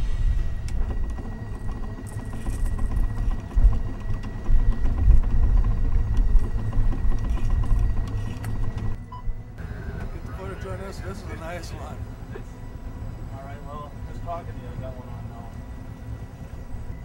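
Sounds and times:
wind buffeting microphone: 0:00.0 - 0:09.5
faint high whine: 0:00.0 - 0:17.0.

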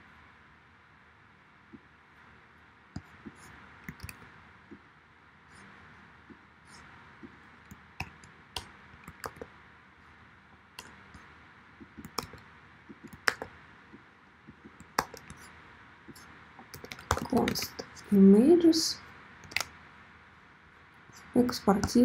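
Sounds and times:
keyboard keys clicking: 0:03.9 - 0:04.2, 0:07.7 - 0:09.5, 0:11.8 - 0:13.5, 0:14.6 - 0:15.4, 0:16.1 - 0:18.0, 0:19.4 - 0:19.7.

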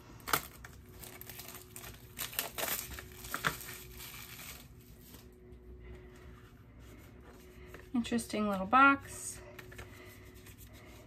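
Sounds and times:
plastic wrap crinkling: 0:00.0 - 0:05.4.

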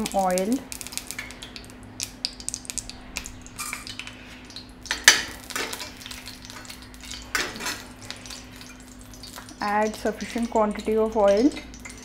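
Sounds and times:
metal utensils scraping frying pan: 0:05.0 - 0:08.4.

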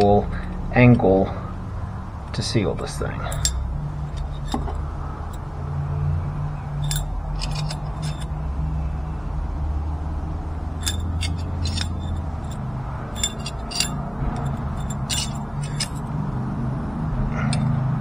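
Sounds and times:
steady low hum: 0:00.0 - 0:18.0
metallic tool clicks and clinks: 0:03.3 - 0:04.7, 0:06.8 - 0:08.3, 0:10.8 - 0:16.1, 0:17.4 - 0:17.8.

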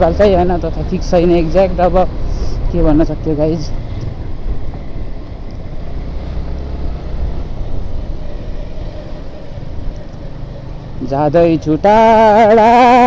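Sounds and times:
motorcycle engine rumble: 0:00.0 - 0:13.0.

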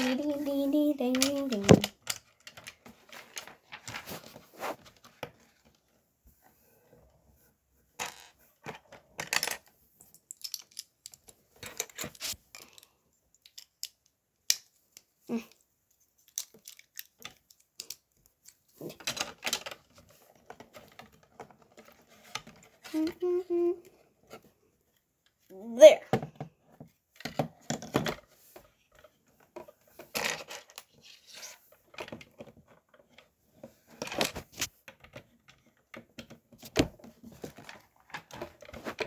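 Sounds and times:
plastic bricks clicking together: 0:09.2 - 0:15.6, 0:16.2 - 0:19.9.

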